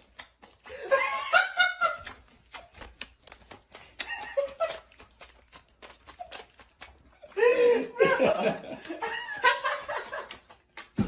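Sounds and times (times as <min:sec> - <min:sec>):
dog teeth clicking on chew: 0:00.0 - 0:00.8, 0:01.8 - 0:07.3, 0:08.8 - 0:11.0.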